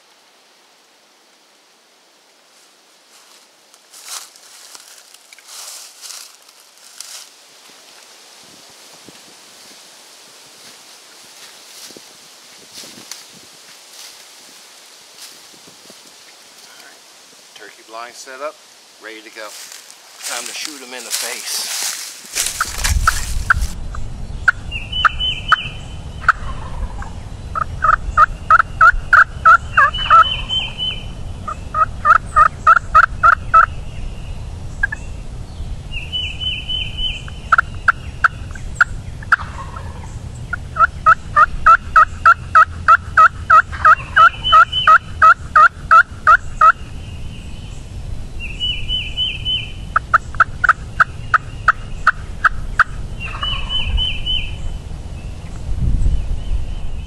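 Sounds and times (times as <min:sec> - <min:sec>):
turkeys gobbling: 0:21.8 - 0:23.8, 0:24.9 - 0:33.7, 0:37.5 - 0:46.8, 0:49.9 - 0:53.9.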